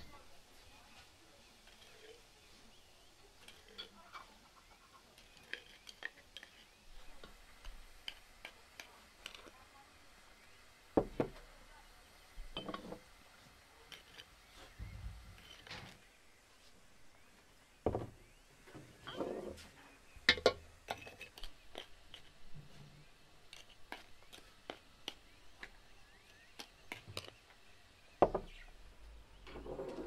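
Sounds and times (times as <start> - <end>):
jars knocked on wooden table: 11.0 - 11.4, 17.8 - 18.2, 28.2 - 28.6
spoon tapping glass jars: 12.5 - 13.0, 20.3 - 22.3.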